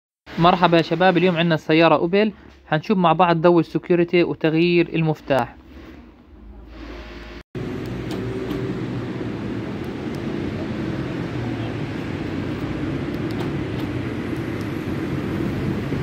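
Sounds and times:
vehicle engine humming: 0:07.6 - 0:16.0.

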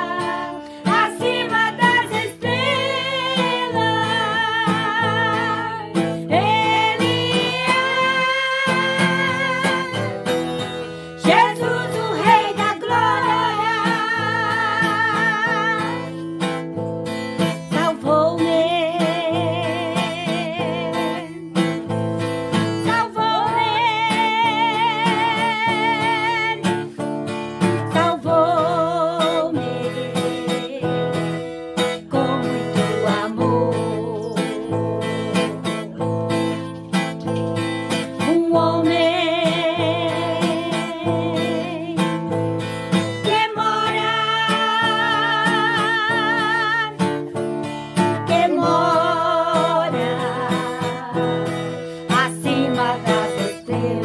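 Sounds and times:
women singing gospel chorus: 0:00.0 - 0:10.1, 0:11.2 - 0:16.1, 0:43.1 - 0:47.0, 0:48.0 - 0:51.3, 0:52.1 - 0:54.0
strummed acoustic guitar: 0:00.0 - 0:54.0.

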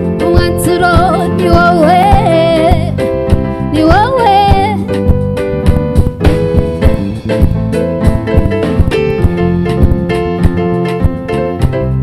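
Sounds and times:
keyboard chords: 0:00.0 - 0:12.0
drum beat: 0:04.5 - 0:11.8.

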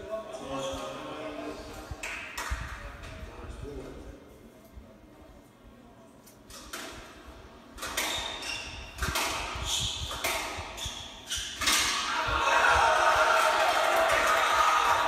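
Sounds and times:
crowd cheering: 0:12.0 - 0:15.0
spectators shouting: 0:12.0 - 0:15.0.

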